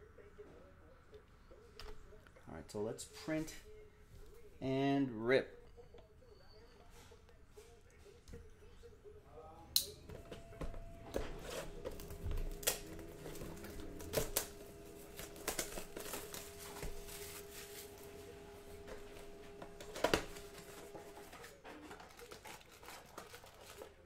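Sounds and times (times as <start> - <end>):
faint hum: 5.5 - 22.3
cardboard and plastic wrap crinkling: 10.2 - 24.0.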